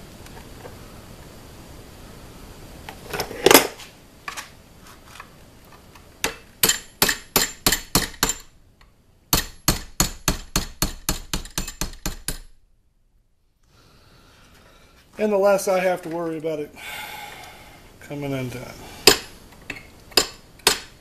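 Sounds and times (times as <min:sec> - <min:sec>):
hammer striking steel punch: 0:06.6 - 0:08.4, 0:09.3 - 0:12.5, 0:19.0 - 0:19.3, 0:20.2 - 0:20.9.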